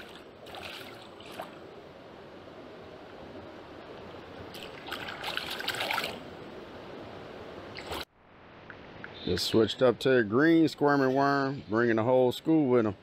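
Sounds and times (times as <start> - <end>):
river water running and trickling: 0.0 - 1.7, 4.4 - 6.4, 7.7 - 8.1
water splashing surge: 4.6 - 6.2.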